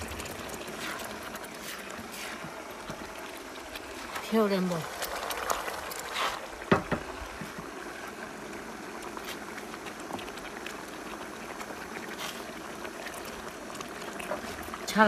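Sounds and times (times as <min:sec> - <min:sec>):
spatula stirring soup: 0:00.0 - 0:04.2
soup bubbling at the boil: 0:00.0 - 0:15.0.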